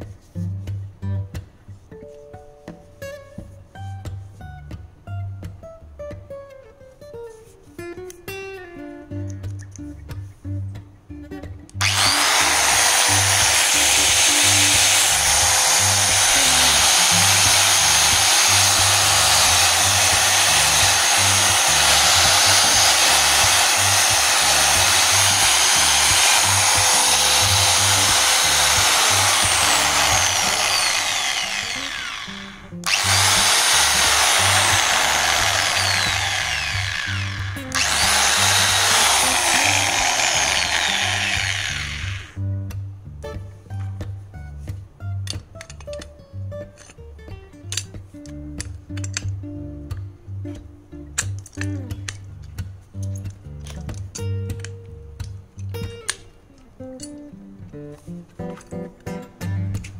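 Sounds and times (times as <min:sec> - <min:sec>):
background music with steady beat: 0:00.0 - 0:59.9
angle grinder running: 0:11.8 - 0:42.4.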